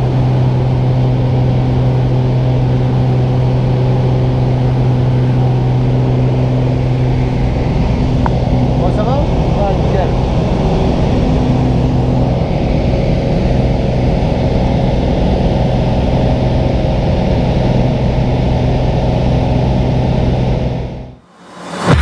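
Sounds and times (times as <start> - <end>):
light aircraft engine droning: 0.0 - 22.0
rushing noise: 21.2 - 22.0.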